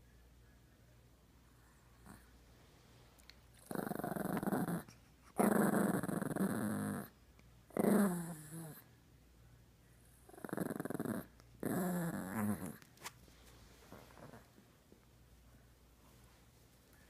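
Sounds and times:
small dog growling: 3.6s - 7.1s, 7.7s - 8.9s, 10.2s - 12.8s, 14.0s - 14.6s.

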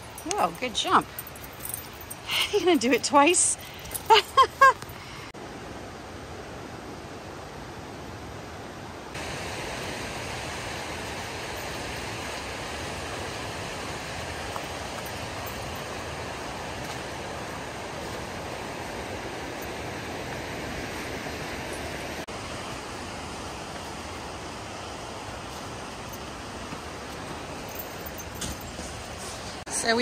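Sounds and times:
river water rushing: 4.9s - 30.0s.

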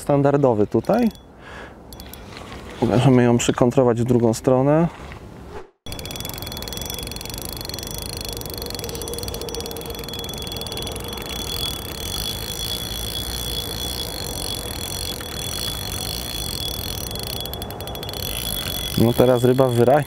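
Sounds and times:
fishing reel ticking: 0.6s - 1.3s, 1.9s - 2.4s, 5.9s - 20.0s
thin high tone: 0.7s - 1.3s, 1.9s - 2.4s, 5.9s - 20.0s.

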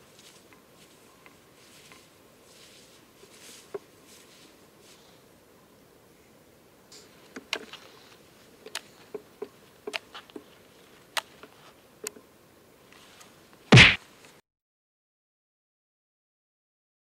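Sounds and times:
loud bang: 13.8s - 14.0s.

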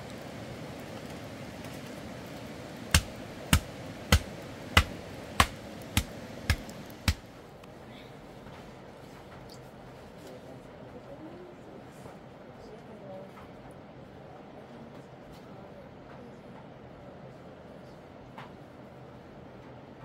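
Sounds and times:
steady background hiss: 0.0s - 13.0s
sharp knocks: 2.9s - 7.2s.

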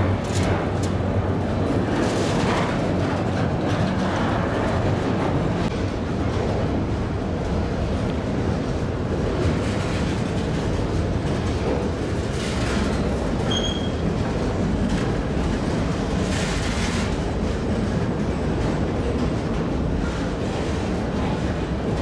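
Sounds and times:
train wheels rumbling on rail: 0.0s - 22.0s
high squeak: 13.5s - 14.0s.

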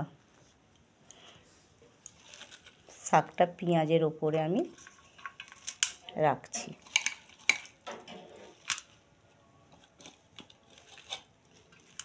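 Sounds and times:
leafy rustles: 2.2s - 3.0s, 9.8s - 12.0s.

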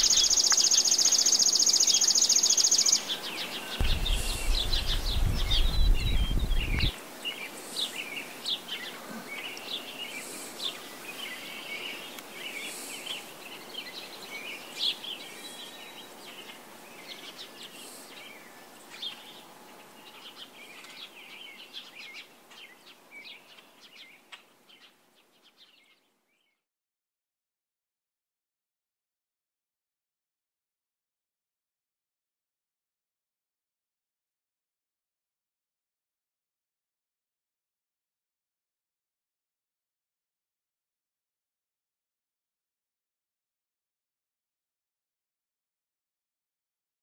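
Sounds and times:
songbirds chirping and singing: 0.0s - 26.6s
loud low rumble: 3.8s - 6.9s.

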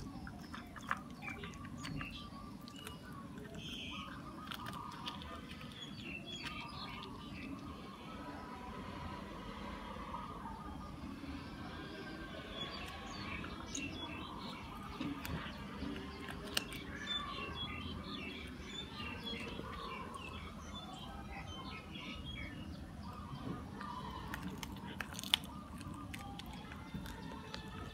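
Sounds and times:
birds chirping: 0.0s - 27.9s
cat chewing raw chicken: 0.0s - 27.9s
bone crunching: 12.9s - 17.7s, 23.9s - 27.9s.

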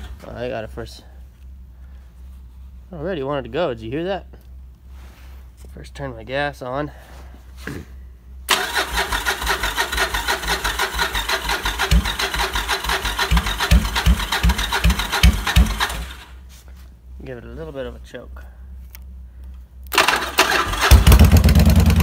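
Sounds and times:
motorcycle starter cranking: 8.5s - 16.3s, 19.9s - 22.0s.

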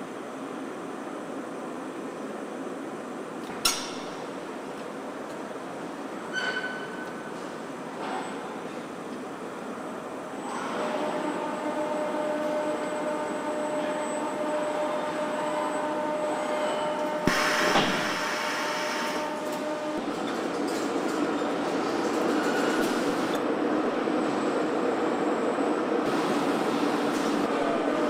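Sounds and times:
burst of hiss: 17.2s - 19.2s.

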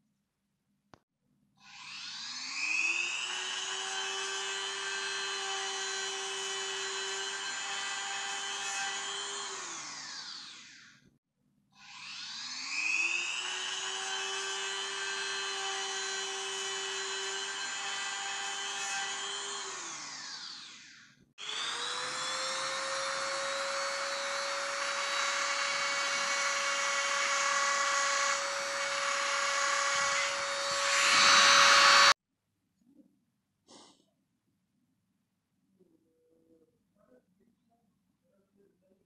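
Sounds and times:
rotary tool whining: 1.8s - 11.0s, 11.8s - 32.2s.

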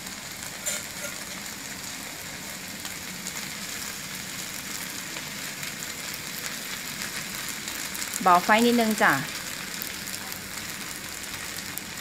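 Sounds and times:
food sizzling in a wok: 0.0s - 12.0s
metal spatula scraping wok: 0.6s - 1.5s.

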